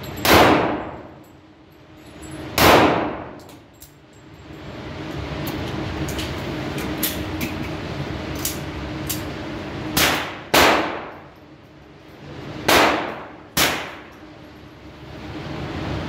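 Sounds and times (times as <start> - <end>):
gunshots echoing indoors: 0.2 - 1.1, 2.6 - 3.5, 9.9 - 11.3, 12.6 - 14.2.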